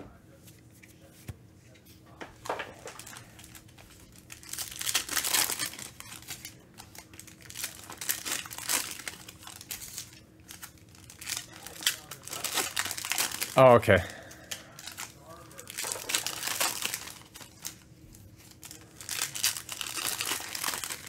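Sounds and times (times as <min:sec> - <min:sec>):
foil wrappers crinkling: 0:02.4 - 0:21.0.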